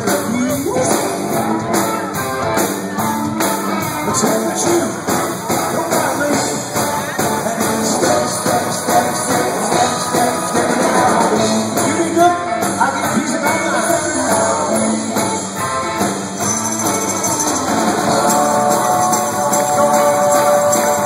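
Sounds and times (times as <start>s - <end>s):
man singing: 0.0s - 2.6s, 3.4s - 21.0s
rock band playing: 0.0s - 21.0s.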